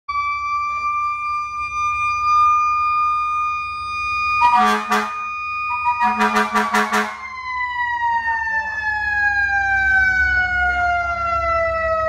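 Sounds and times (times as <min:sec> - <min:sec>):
siren wailing: 0:00.1 - 0:12.0
fire truck air horn blasts: 0:04.4 - 0:07.3.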